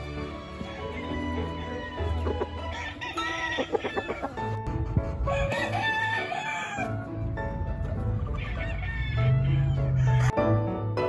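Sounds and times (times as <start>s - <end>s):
chickens clucking: 0.0s - 10.4s
background music: 0.0s - 11.0s
rooster crowing: 0.6s - 4.4s, 5.3s - 7.1s, 8.4s - 10.4s.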